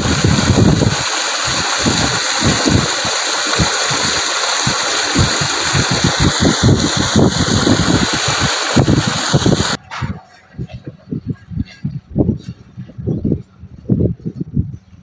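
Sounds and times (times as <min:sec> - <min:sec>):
water gushing from pipe: 0:00.0 - 0:09.8.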